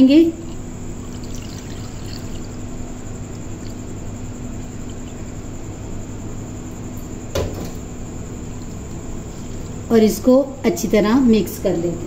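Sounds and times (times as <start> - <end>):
steady low hum: 0.0 - 12.0
short knock: 7.3 - 7.8.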